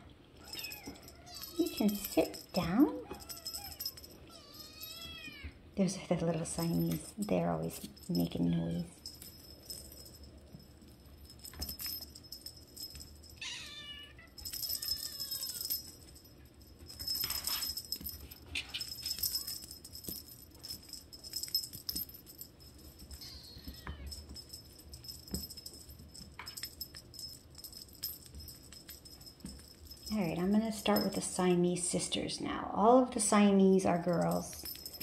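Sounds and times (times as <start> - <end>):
wand toy jingling and rattling: 0.4 - 5.4, 6.0 - 32.3, 33.2 - 35.0
kittens meowing: 13.4 - 15.8, 23.2 - 24.2.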